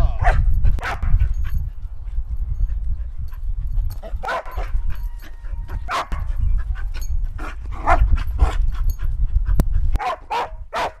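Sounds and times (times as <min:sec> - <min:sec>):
dog panting: 0:06.2 - 0:10.0.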